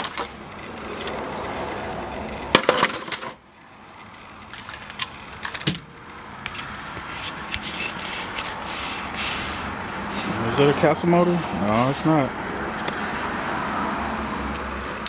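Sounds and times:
handling clicks and knocks: 0.0 - 1.2, 2.3 - 6.6.

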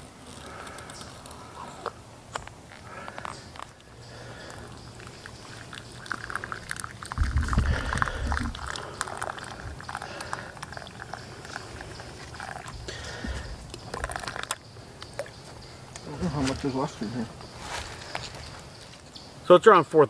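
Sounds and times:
coffee pouring into cup: 4.1 - 14.6.

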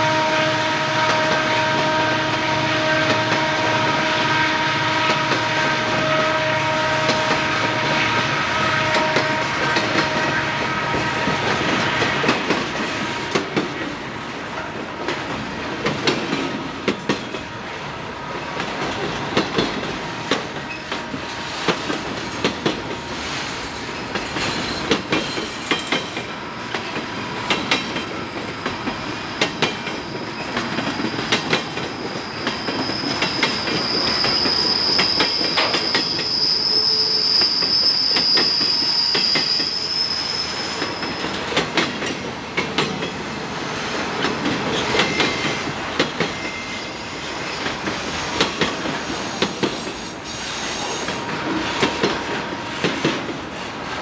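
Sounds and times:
train wheels clattering on rails: 0.9 - 4.4, 5.0 - 54.0
high-pitched wheel squeal: 29.9 - 41.4, 46.3 - 51.2.

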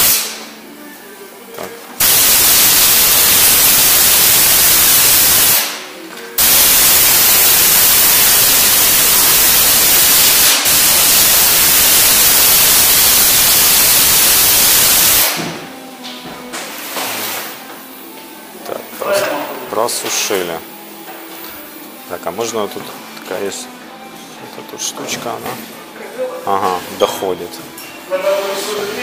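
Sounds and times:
compressed air hissing from blow gun: 0.0 - 0.4, 2.0 - 5.8, 6.4 - 15.5.

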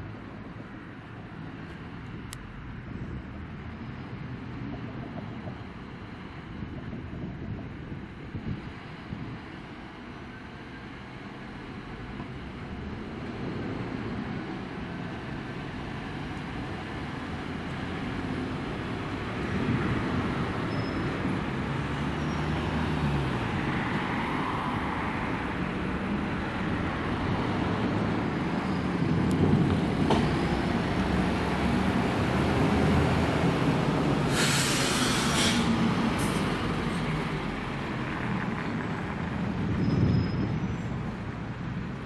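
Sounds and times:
car engines: 0.0 - 42.0
tram running on track: 0.0 - 42.0
short hiss: 34.3 - 36.5.

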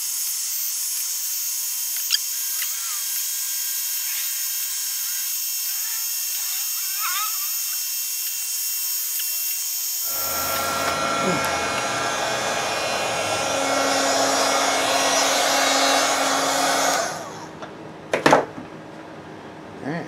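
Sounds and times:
heat gun blowing hot air: 10.0 - 17.6.

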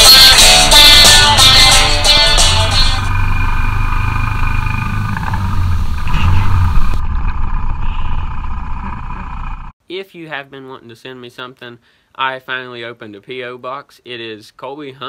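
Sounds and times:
atv engine running: 1.2 - 9.7.

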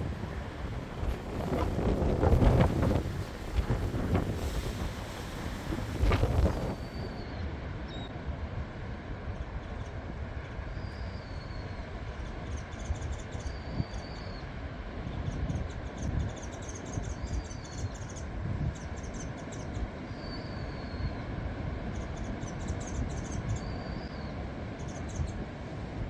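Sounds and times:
strong wind buffeting microphone: 0.0 - 7.7, 14.8 - 19.0.

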